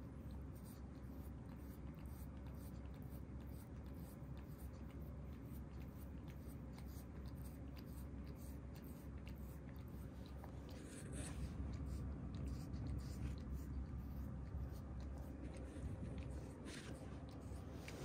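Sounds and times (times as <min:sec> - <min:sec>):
cat tongue rasping on fur: 0:00.0 - 0:18.0
low steady rumble: 0:00.0 - 0:18.0
hand rubbing fur: 0:09.9 - 0:18.0.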